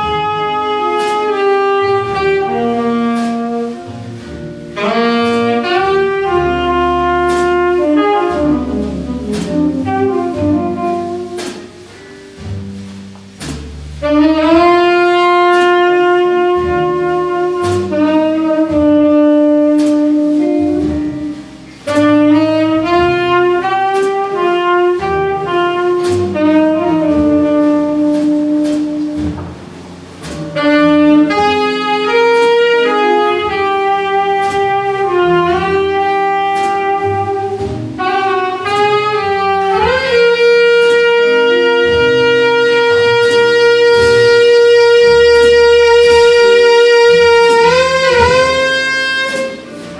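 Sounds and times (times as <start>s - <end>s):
tenor saxophone melody: 0.0s - 11.9s, 14.0s - 29.8s, 30.5s - 49.9s
double bass: 0.0s - 49.9s
drum cymbals: 0.0s - 49.9s.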